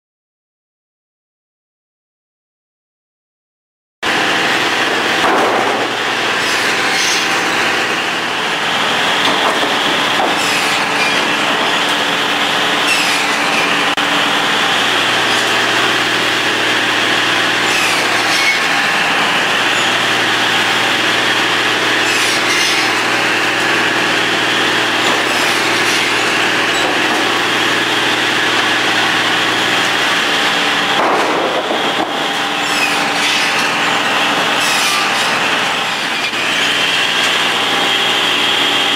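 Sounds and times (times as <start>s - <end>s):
chop saw cutting boards: 4.0s - 38.9s
boards knocking: 5.2s - 6.0s, 9.2s - 11.8s, 30.9s - 32.5s.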